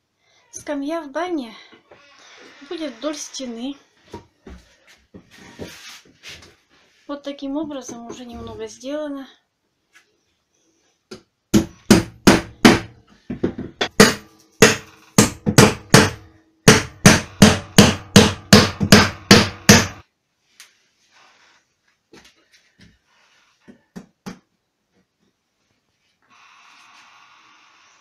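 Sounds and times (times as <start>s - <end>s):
hammer driving nails into wood: 11.1s - 20.0s.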